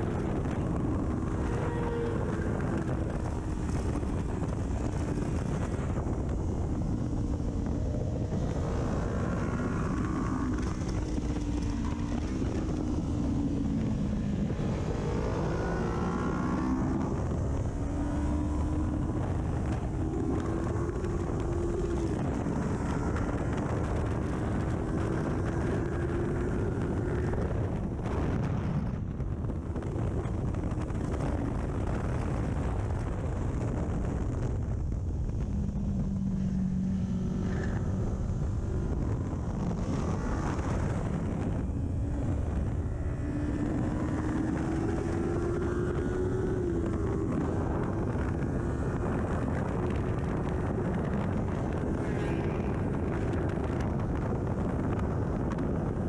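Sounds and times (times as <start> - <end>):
motorcycle engine revving: 0.0 - 56.0
wind rush: 0.0 - 56.0.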